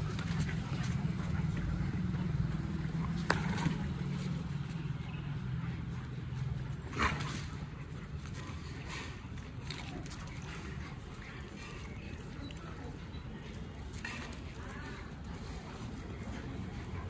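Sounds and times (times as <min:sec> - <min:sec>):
dogs playing: 0:00.0 - 0:17.0.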